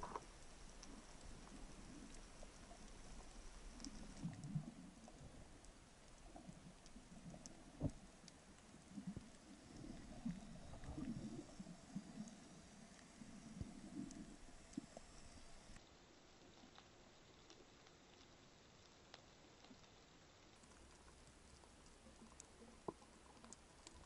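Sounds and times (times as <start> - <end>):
underwater knocks and rumbles: 0.0 - 12.5
faint clicks: 0.0 - 15.8, 16.5 - 24.0.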